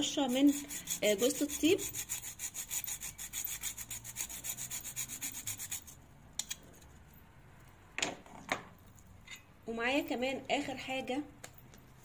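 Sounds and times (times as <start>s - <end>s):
nutmeg scraped on metal grater: 0.0s - 6.0s.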